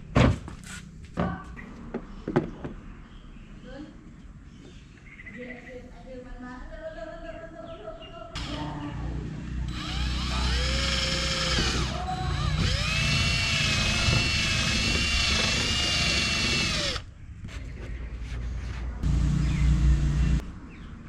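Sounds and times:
cordless drill boring plastic: 9.7 - 17.0.

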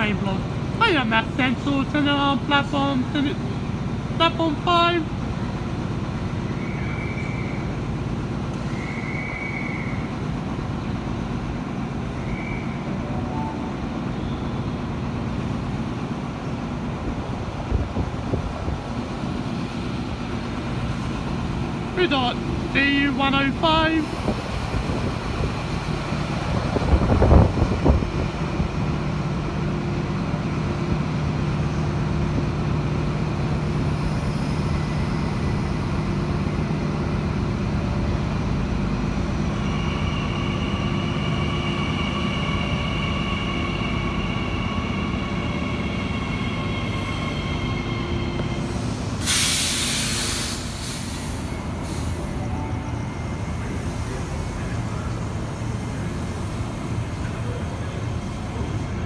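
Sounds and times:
electric train rumbling past: 0.0 - 59.0
air hissing: 48.5 - 52.5.

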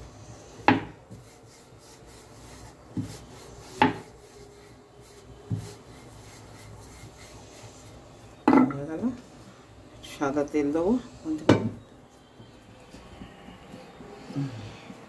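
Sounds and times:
rolling pin rubbing on dough: 0.0 - 8.4.

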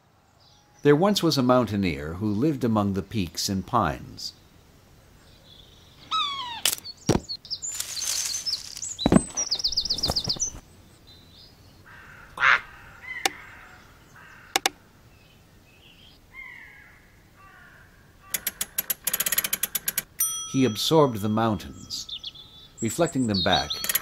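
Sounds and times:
birds chirping and calling: 4.3 - 19.0, 20.6 - 24.0
sharp clicks: 14.6 - 14.8, 18.3 - 20.1, 23.8 - 24.0.

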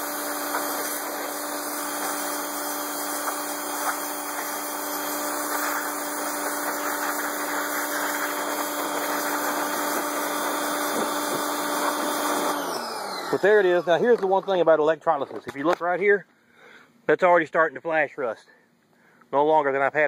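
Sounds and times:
water jet hissing on metal: 0.0 - 12.5
pressure washer humming: 0.0 - 14.2.

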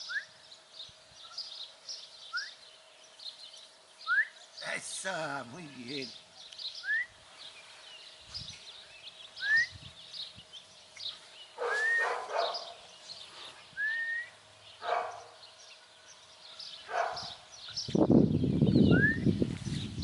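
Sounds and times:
birds chirping: 0.0 - 20.0
puppy yips: 11.6 - 12.7.

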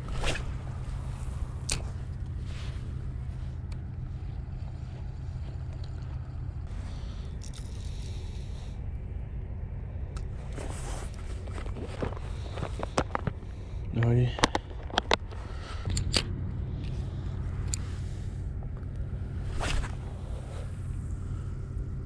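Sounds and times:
fishing rod swish: 0.0 - 2.8, 19.4 - 20.8
handling and wind rumble: 0.0 - 22.0.

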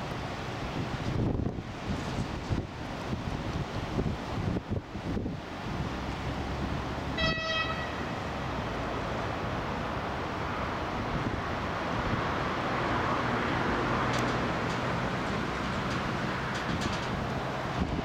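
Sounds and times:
high-pitched horn toot: 7.2 - 8.2.

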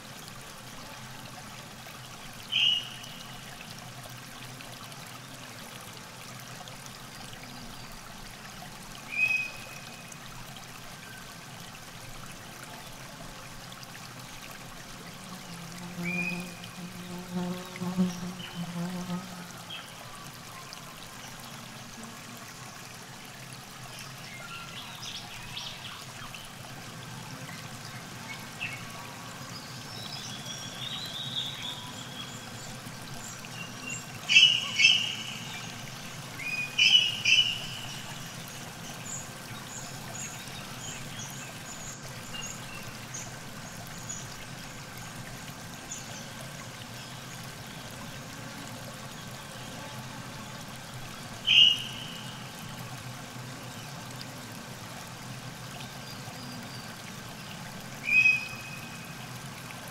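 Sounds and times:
river water trickling: 0.0 - 59.9
birds calling: 34.2 - 35.8, 36.5 - 38.2, 51.5 - 52.2
loud sharp bird calls: 51.5 - 52.1.

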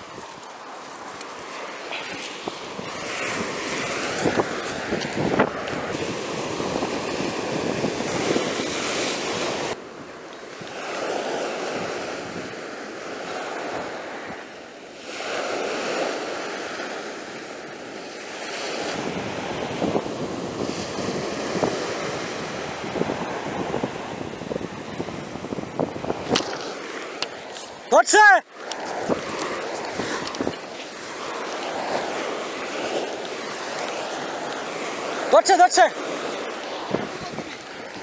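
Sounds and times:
wind buffeting microphone: 0.0 - 14.5, 18.5 - 27.9, 28.5 - 35.3, 36.0 - 38.0
surf washing up beach: 0.0 - 38.0.

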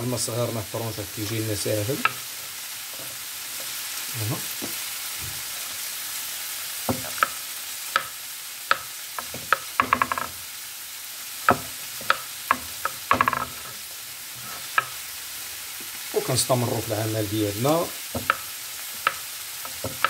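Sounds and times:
vegetables sizzling in a pan: 0.0 - 20.0
knife tapping on cutting board: 8.7 - 10.3, 11.5 - 13.5, 18.1 - 20.0.

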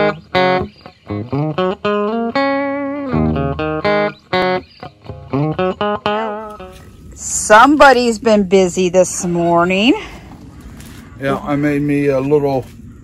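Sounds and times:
guitar notes plucked: 0.0 - 9.6.

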